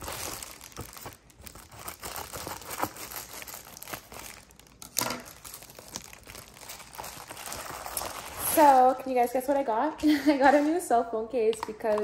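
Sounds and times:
scissors cutting plastic: 0:00.0 - 0:08.9
plastic mailer crinkling: 0:00.0 - 0:09.0.

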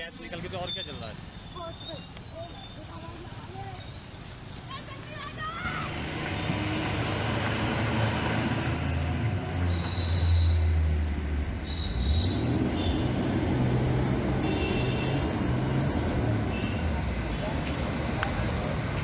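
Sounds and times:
bus engine rumbling: 0:04.4 - 0:19.0.

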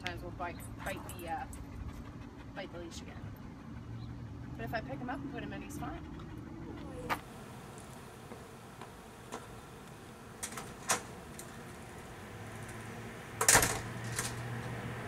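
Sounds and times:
door shutting with clattering bang: 0:10.4 - 0:11.7, 0:12.6 - 0:14.6.

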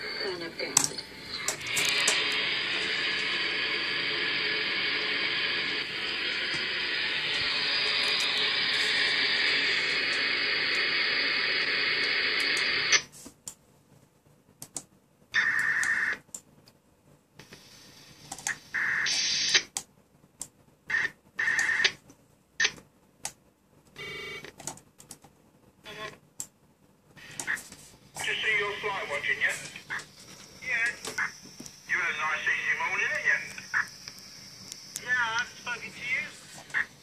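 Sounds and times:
radio static hiss: 0:00.0 - 0:13.1, 0:17.4 - 0:19.8, 0:20.9 - 0:22.0, 0:25.9 - 0:26.2, 0:27.2 - 0:37.0
radio transmissions buzzing and bleeping: 0:00.0 - 0:13.1, 0:18.5 - 0:19.7, 0:20.9 - 0:22.0, 0:25.9 - 0:26.2, 0:27.2 - 0:37.0.

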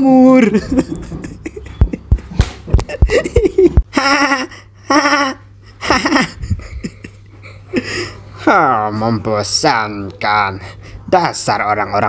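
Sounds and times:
person laughing cartoon-style: 0:00.2 - 0:08.0.

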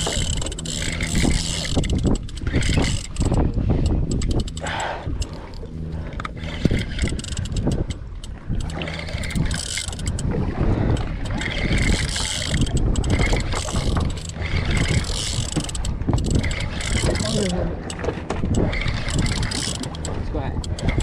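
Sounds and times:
boat engine humming: 0:00.0 - 0:21.0.

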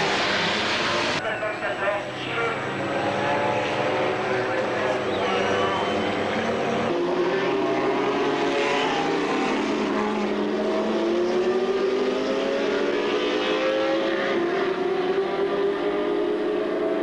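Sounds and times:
race car engines: 0:00.0 - 0:17.0.

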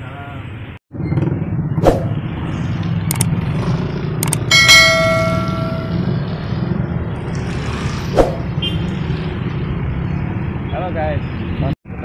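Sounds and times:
traffic on a wet road: 0:02.1 - 0:12.0
small clicks: 0:03.1 - 0:03.3, 0:04.2 - 0:04.4.

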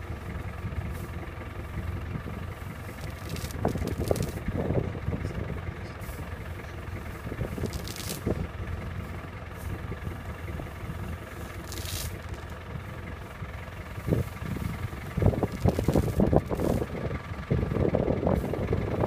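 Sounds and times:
steady low rumble: 0:00.0 - 0:19.0
elephant ripping grass: 0:02.8 - 0:04.5, 0:07.1 - 0:08.5, 0:11.2 - 0:12.6, 0:14.0 - 0:16.9.

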